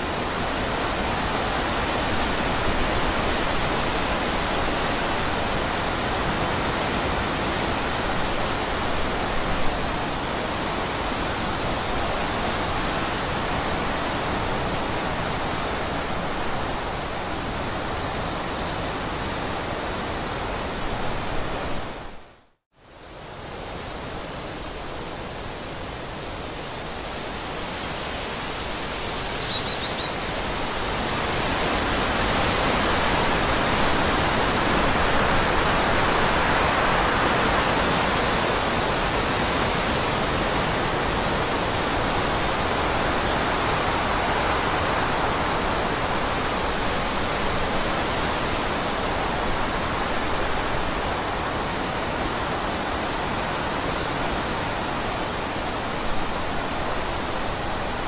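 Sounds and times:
forest rushing noise: 0.0s - 58.0s
high bird chirp: 24.6s - 25.3s, 29.3s - 30.3s.

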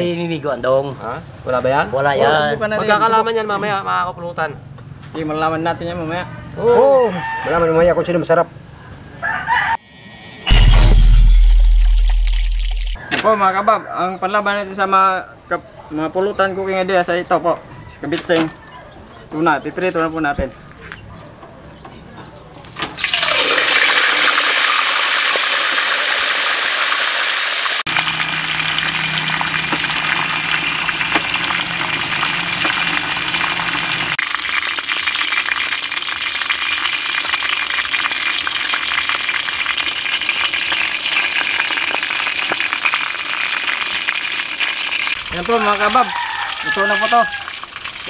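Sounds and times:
fish sizzling in hot oil: 22.7s - 48.0s.

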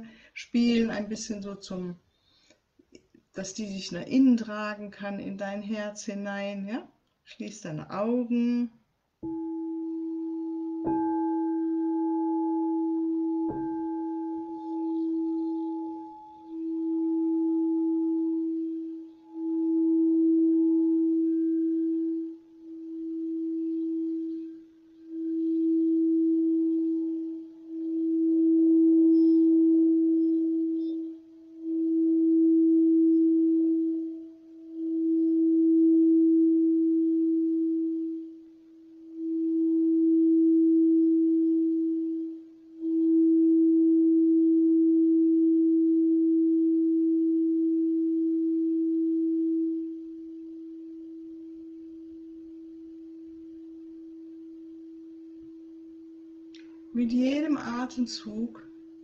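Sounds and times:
crystal singing bowl: 7.7s - 59.0s.

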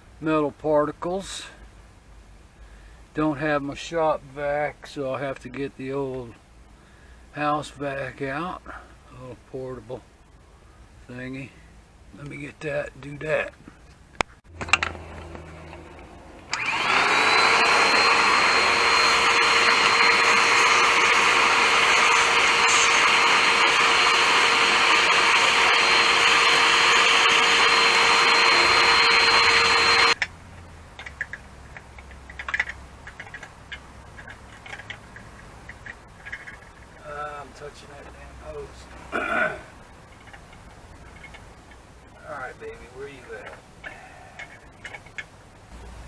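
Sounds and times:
vacuum cleaner whining: 14.6s - 30.2s.

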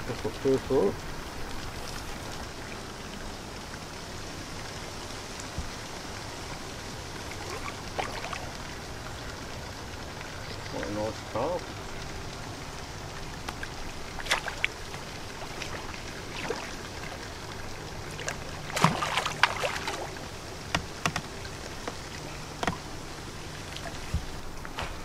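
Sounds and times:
fish splashing in water: 7.1s - 10.6s, 13.1s - 25.0s.

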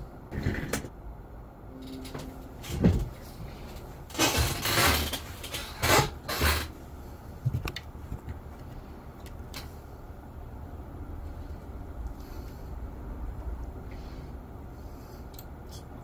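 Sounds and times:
rustling in an office chair: 1.8s - 10.1s.

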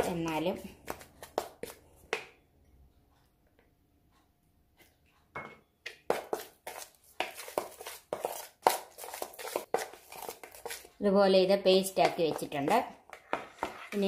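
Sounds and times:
metal spoon scraping a bowl: 13.1s - 14.0s.

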